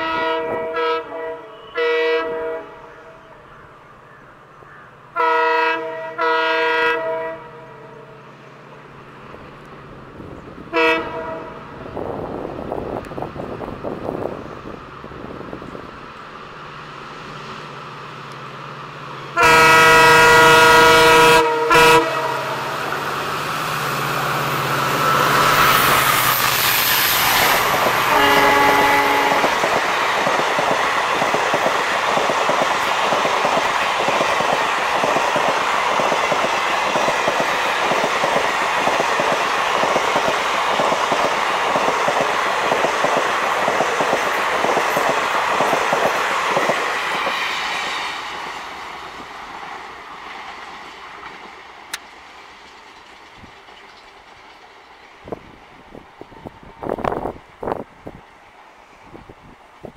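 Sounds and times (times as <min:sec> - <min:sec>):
locomotive air horn blasts: 0:00.0 - 0:02.9, 0:05.2 - 0:07.9, 0:10.7 - 0:11.7, 0:19.4 - 0:22.8, 0:28.0 - 0:29.6
train rumbling past: 0:00.0 - 0:59.9
clickety-clack of train wheels: 0:25.4 - 0:57.8.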